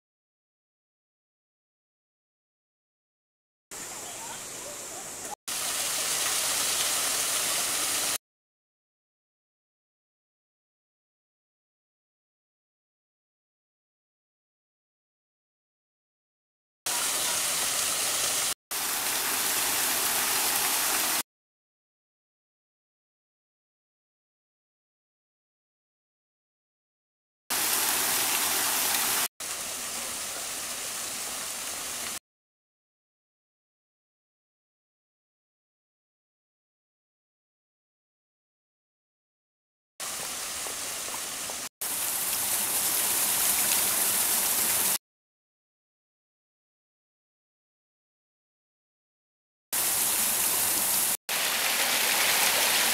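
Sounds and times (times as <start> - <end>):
waterfall splashing onto rocks: 5.5 - 8.2, 16.9 - 21.2, 27.5 - 32.2, 40.0 - 45.0, 49.8 - 52.9.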